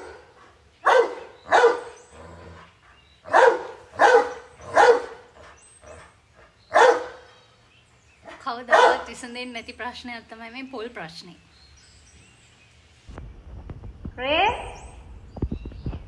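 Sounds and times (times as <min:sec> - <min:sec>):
dog barking: 0:00.0 - 0:02.0, 0:03.3 - 0:05.3, 0:06.7 - 0:07.2, 0:08.7 - 0:09.1.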